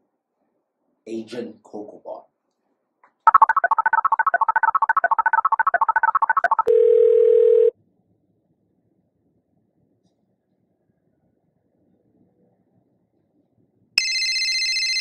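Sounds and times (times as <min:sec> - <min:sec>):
phone keypad beeps: 0:03.3 - 0:07.7, 0:14.0 - 0:15.0
steady phone line tone: 0:03.3 - 0:07.7, 0:14.0 - 0:15.0.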